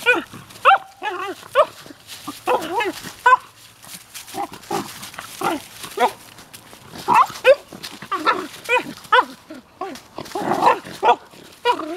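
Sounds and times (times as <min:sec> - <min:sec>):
dog whining and yipping: 0:00.0 - 0:01.8, 0:07.1 - 0:10.0.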